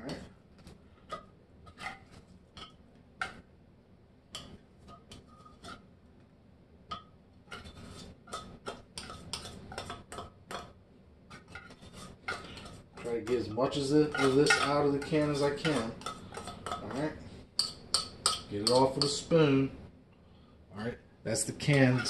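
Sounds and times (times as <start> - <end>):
metal spoon scraping a can: 1.0 - 2.8, 4.4 - 5.8, 7.5 - 10.7, 11.3 - 19.3.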